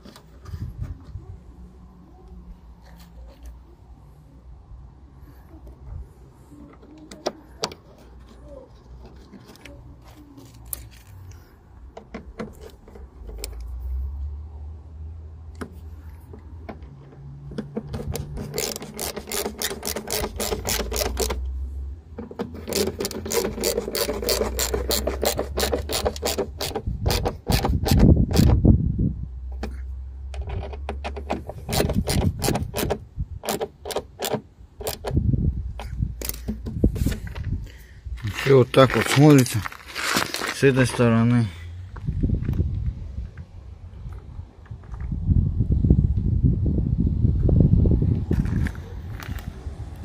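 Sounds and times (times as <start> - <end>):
ratchet screwdriver clicking: 18.0 - 21.4, 22.6 - 28.5.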